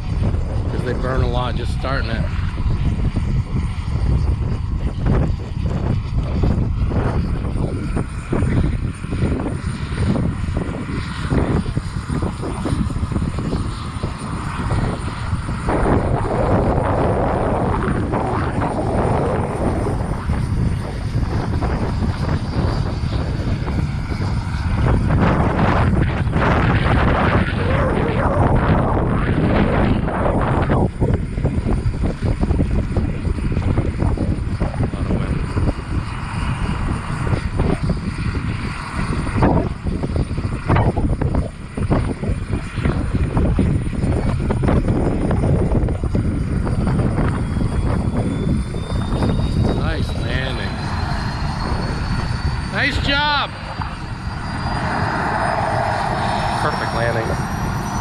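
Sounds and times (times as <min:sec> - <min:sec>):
model jet turbine whining: 0:00.0 - 0:58.0.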